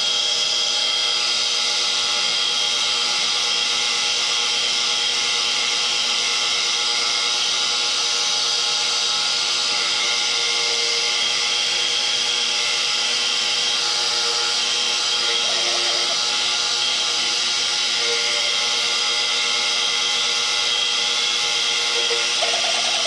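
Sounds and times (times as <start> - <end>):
milling machine cutting metal: 9.5 - 23.0.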